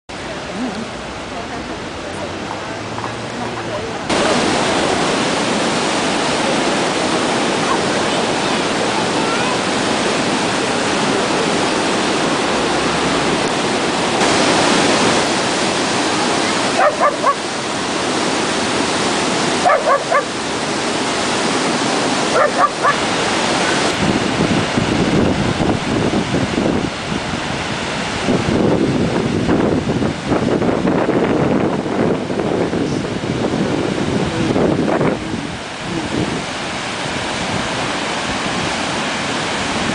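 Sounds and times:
white water rushing: 0:00.1 - 0:39.9
dog barking: 0:16.7 - 0:17.4, 0:19.6 - 0:20.4, 0:22.3 - 0:23.0.

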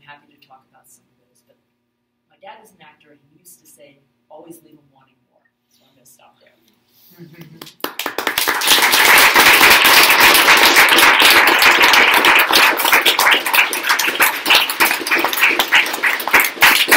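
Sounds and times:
audience applauding: 0:07.6 - 0:16.9.

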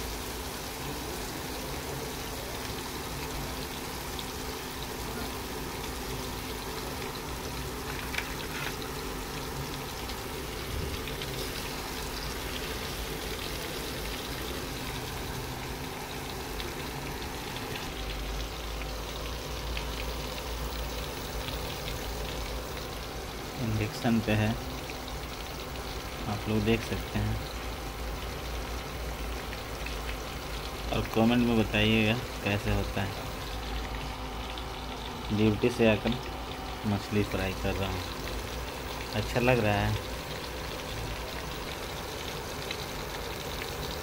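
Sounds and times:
fish sizzling in oil: 0:00.0 - 0:44.0
oil crackling and popping: 0:00.0 - 0:44.0.

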